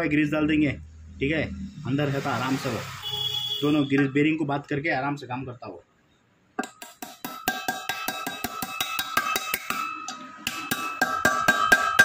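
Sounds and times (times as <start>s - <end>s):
hammer striking steel: 6.6s - 12.0s.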